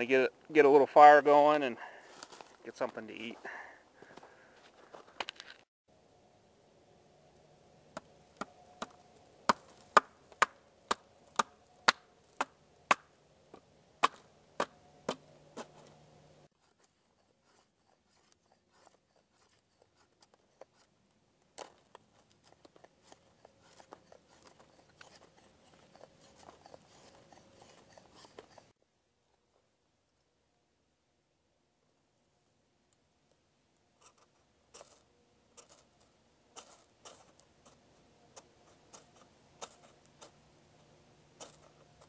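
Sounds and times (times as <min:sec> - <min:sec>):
hatchet blade shaving wood: 0:21.6 - 0:28.7, 0:38.9 - 0:40.4.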